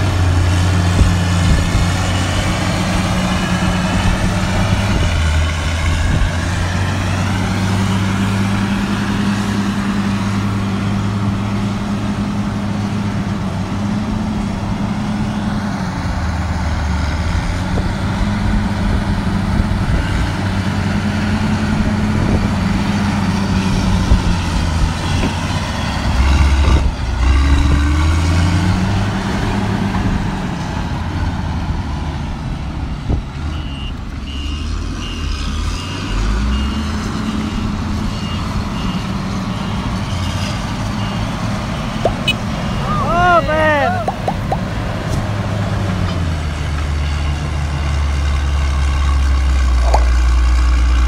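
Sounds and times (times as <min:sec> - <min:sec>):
diesel engine under load: 0:00.0 - 0:51.0
reversing alarm beeping: 0:33.5 - 0:40.3, 0:40.9 - 0:43.1.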